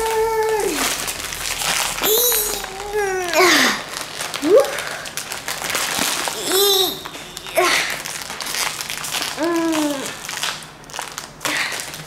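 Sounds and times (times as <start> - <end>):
foil bag crinkling: 0.0 - 12.0
child grunting: 2.0 - 3.8, 6.4 - 8.0.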